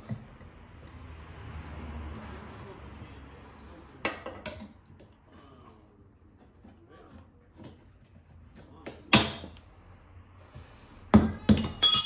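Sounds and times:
metal tool clattering on tiles: 11.5 - 12.0
bright metallic ring: 11.6 - 12.0.

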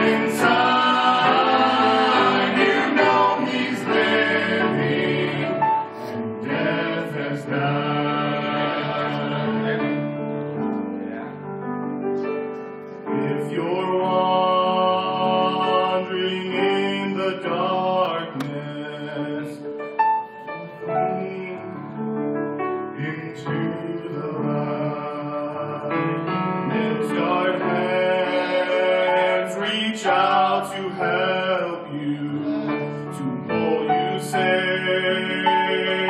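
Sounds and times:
vocal trio singing in harmony: 0.0 - 10.3, 13.1 - 19.7, 23.0 - 36.0
piano accompaniment: 0.0 - 36.0.

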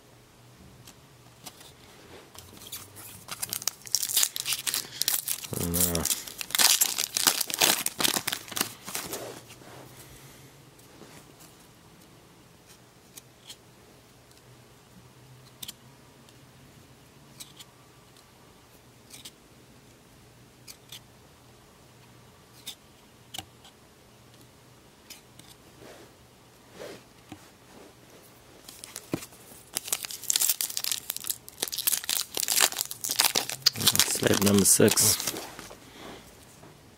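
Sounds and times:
trading cards shuffled: 2.3 - 9.5, 28.6 - 35.8
card pack wrapper crinkling and tearing: 2.6 - 9.2, 28.7 - 35.7.

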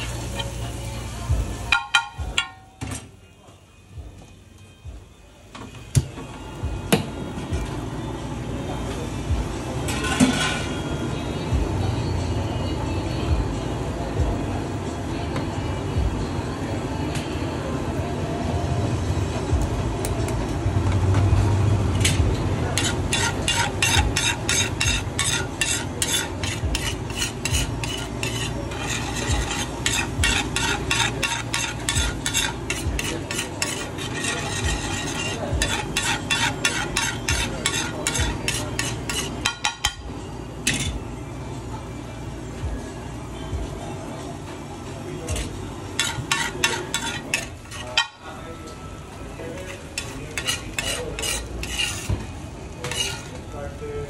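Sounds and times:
food sizzling: 0.0 - 2.2, 22.7 - 39.5
metal spatula striking griddle: 1.7 - 2.9, 22.0 - 40.0, 40.6 - 41.0, 45.3 - 48.2, 49.6 - 53.3.

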